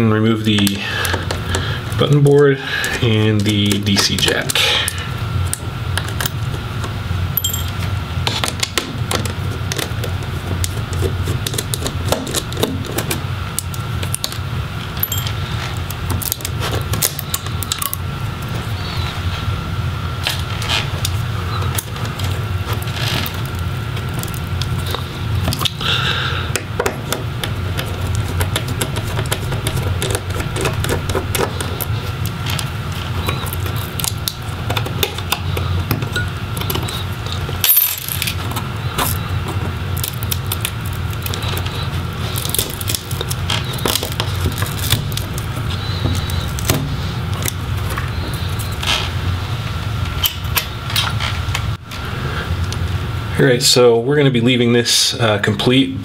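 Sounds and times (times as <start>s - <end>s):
steady low hum: 0.0s - 56.0s
small metal parts rattling: 7.4s - 7.8s, 37.6s - 38.4s.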